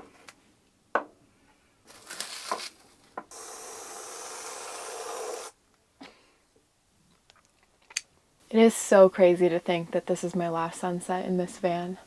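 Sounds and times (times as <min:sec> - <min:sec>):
aerosol can spraying hiss: 0:03.3 - 0:05.6.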